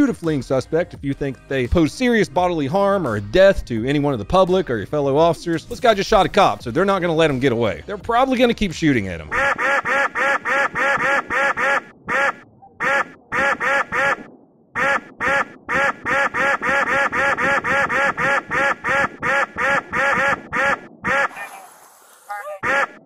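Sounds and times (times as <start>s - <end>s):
cartoon duck quacks: 9.3s - 21.7s, 22.3s - 23.0s.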